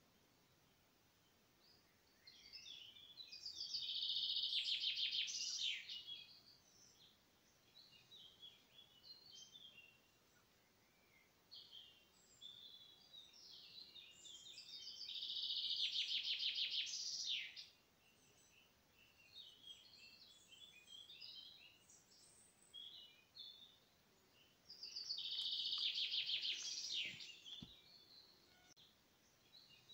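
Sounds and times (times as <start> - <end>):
songbird trilled song: 1.6 - 29.9
high bird chirps: 24.8 - 28.8.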